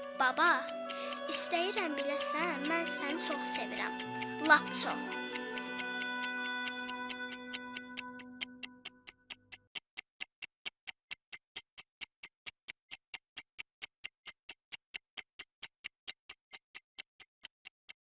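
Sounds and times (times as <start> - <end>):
held music notes: 0.0 - 9.0
clock ticking: 0.0 - 18.0.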